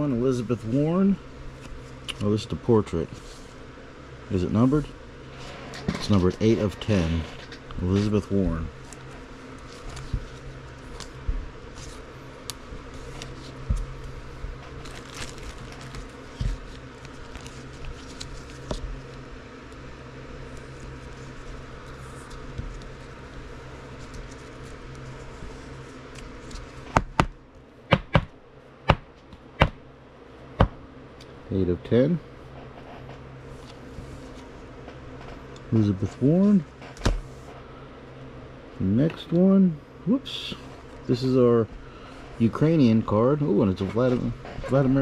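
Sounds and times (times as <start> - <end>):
steady low hum: 0.0 - 45.0
trading cards rustling: 6.0 - 19.3.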